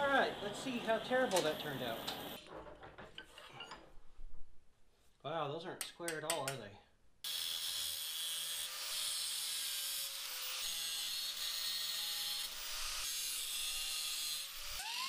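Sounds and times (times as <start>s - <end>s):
angle grinder grinding steel: 7.3s - 15.0s.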